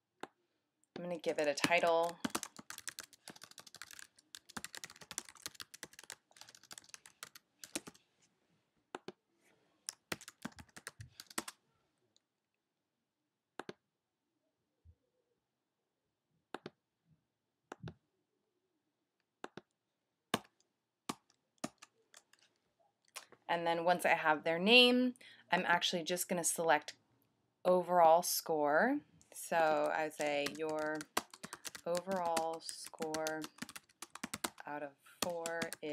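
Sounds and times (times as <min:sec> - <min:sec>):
typing on computer keyboard: 0:01.3 - 0:08.0, 0:09.9 - 0:11.6, 0:21.1 - 0:22.5, 0:29.8 - 0:34.6, 0:35.2 - 0:35.8.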